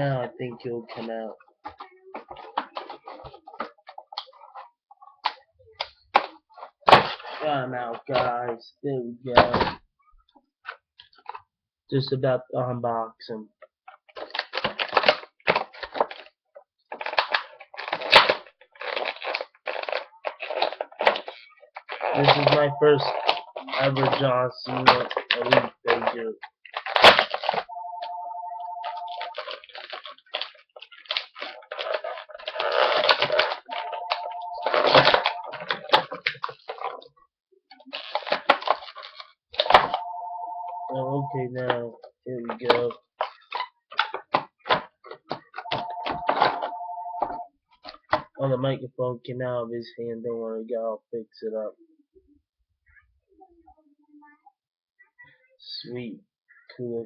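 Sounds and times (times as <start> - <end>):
plastic packaging crinkling: 14.2 - 16.3, 16.9 - 37.0, 37.8 - 40.2.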